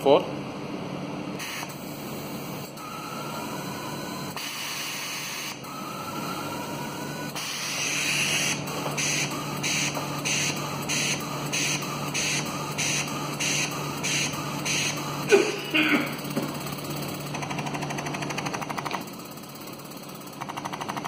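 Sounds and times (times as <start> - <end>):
short bursts of air: 1.4 - 2.2, 7.4 - 15.6.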